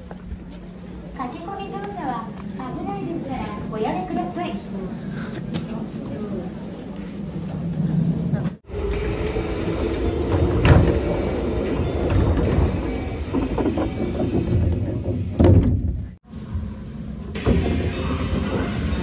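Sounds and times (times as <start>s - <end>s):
train rumble and clatter: 0.0s - 19.0s.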